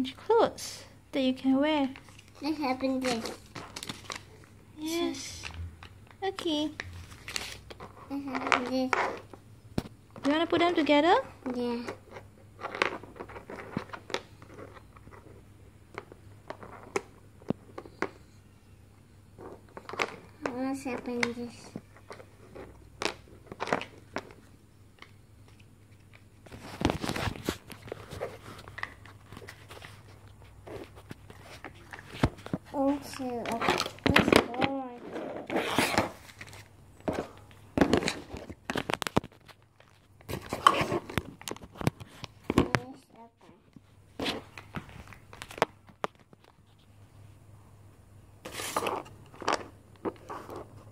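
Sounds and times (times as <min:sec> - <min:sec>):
paper wrapper crinkling: 0:01.9 - 0:05.6.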